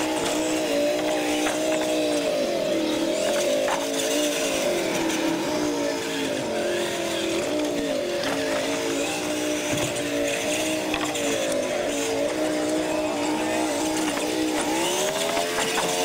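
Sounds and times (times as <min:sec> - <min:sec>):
toy truck motors whining: 0:00.0 - 0:16.0.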